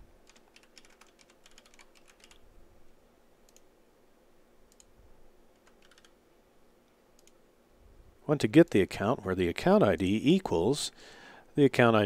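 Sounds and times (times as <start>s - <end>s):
computer keyboard typing: 0.2s - 2.4s, 5.5s - 6.2s.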